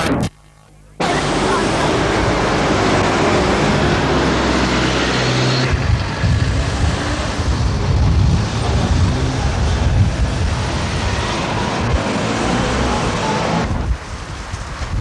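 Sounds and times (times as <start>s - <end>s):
heavy low rumble: 0.0s - 15.0s
cars driving past: 1.0s - 14.9s.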